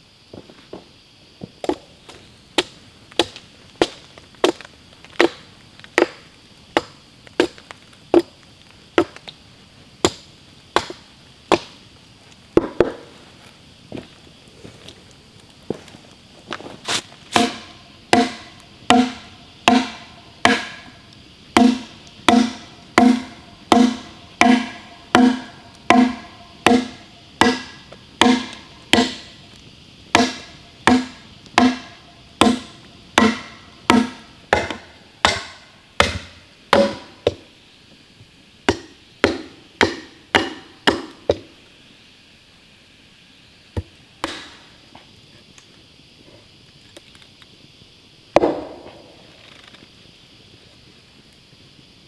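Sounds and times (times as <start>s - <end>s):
hatchet chopping log: 2.6s - 8.3s, 9.0s - 9.2s, 10.0s - 10.2s, 10.8s - 11.7s, 17.3s - 21.0s, 21.6s - 29.3s, 30.1s - 37.4s, 38.7s - 41.5s, 43.8s - 44.6s, 48.4s - 48.9s.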